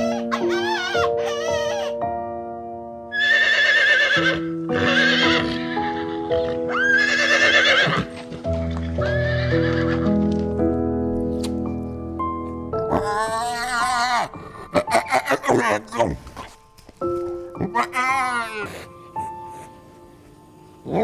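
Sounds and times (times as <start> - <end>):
background music of held notes: 0.0 - 21.0
horse whinnying: 3.1 - 8.2, 9.0 - 10.1.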